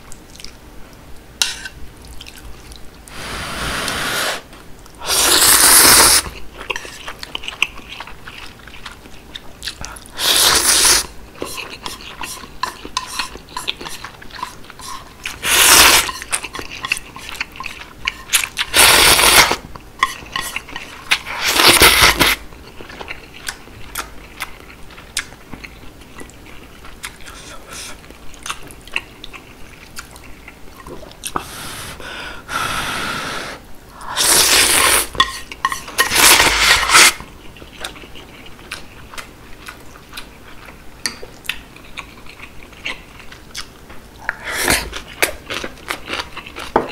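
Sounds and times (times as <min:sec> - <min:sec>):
slurping noodles: 0:03.1 - 0:06.3, 0:15.3 - 0:16.2, 0:18.7 - 0:19.6
wet chewing: 0:06.2 - 0:31.4, 0:35.4 - 0:46.7.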